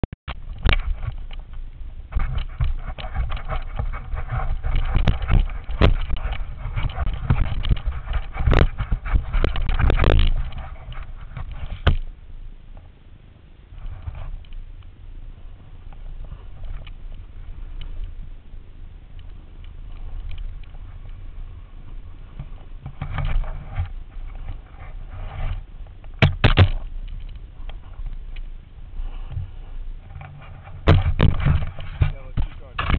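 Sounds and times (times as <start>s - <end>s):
wind buffeting microphone: 0.3s - 32.9s
camera knocks and scrapes: 0.5s - 1.5s, 2.1s - 12.1s, 22.3s - 26.9s, 29.3s - 32.9s.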